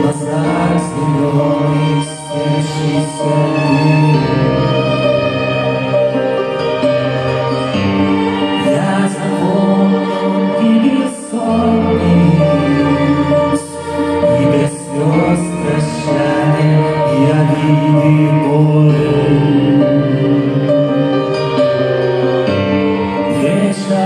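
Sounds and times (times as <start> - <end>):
lead vocals singing: 0.0 - 6.0, 8.1 - 22.0, 23.1 - 24.0.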